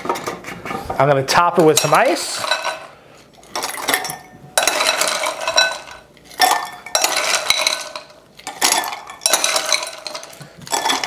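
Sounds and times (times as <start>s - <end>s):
glass ringing: 3.6s - 11.0s
ice cubes clinking in glass: 3.6s - 11.0s.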